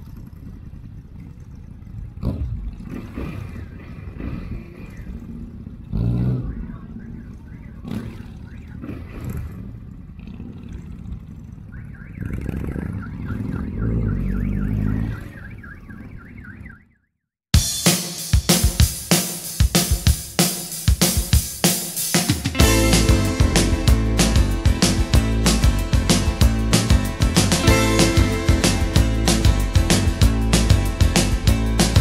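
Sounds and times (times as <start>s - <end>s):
motorcycle engines running: 0.0s - 16.7s, 22.4s - 32.0s
high warbling tone: 22.6s - 32.0s.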